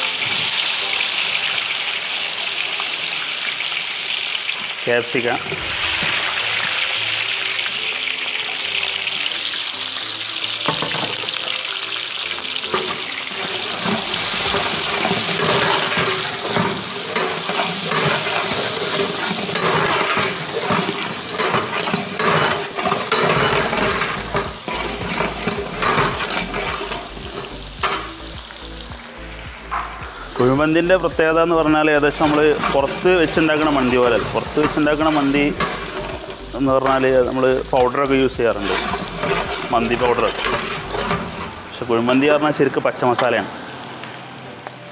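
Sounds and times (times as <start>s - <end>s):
vegetables sizzling in oil: 0.0s - 43.4s
metal ladle scraping a pot: 12.6s - 28.3s, 31.8s - 41.7s.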